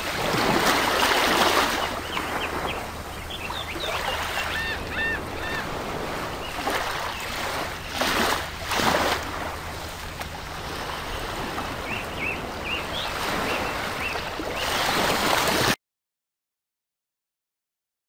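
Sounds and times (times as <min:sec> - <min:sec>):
low pump hum: 0:00.0 - 0:14.6.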